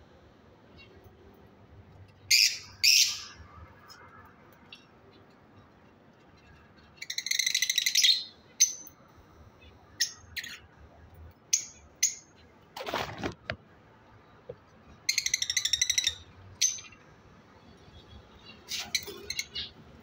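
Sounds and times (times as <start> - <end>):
lovebirds chattering: 9.6 - 10.7, 18.4 - 19.8.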